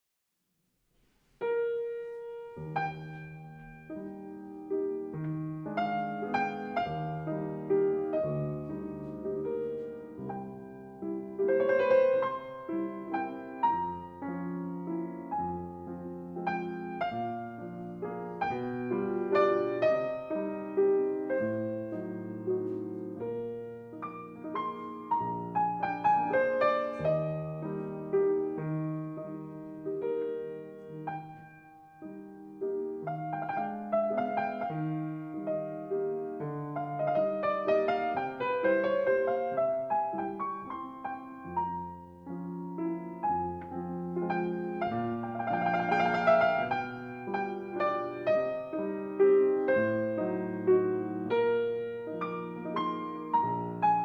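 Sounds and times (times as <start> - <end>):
piano music: 1.4 - 54.0.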